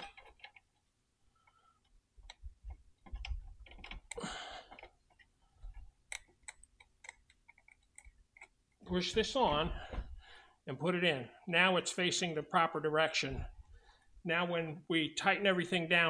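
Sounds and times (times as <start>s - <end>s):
metal parts clicking: 0.0s - 0.9s, 2.2s - 8.7s
dull thumps: 8.9s - 10.4s.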